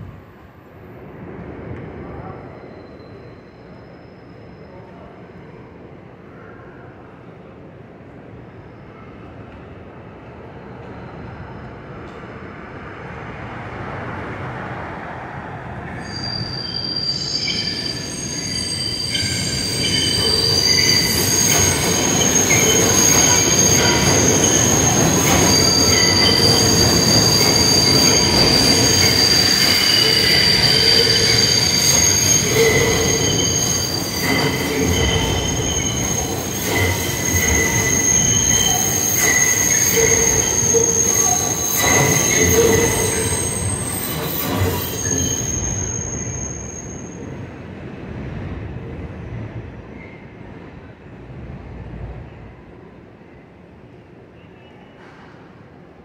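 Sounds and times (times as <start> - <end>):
train wheels squealing on rails: 1.9 - 51.1, 52.3 - 56.0
train rumble: 19.2 - 45.6.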